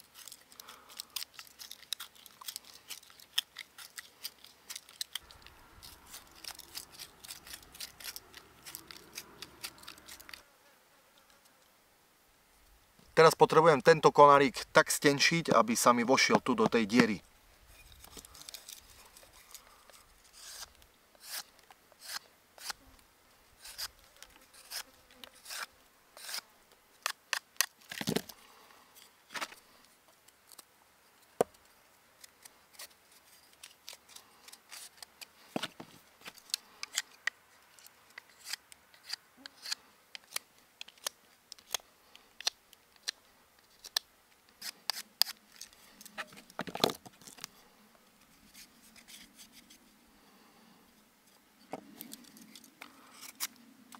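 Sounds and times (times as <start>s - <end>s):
knife whittling wood: 20.3s - 22.8s.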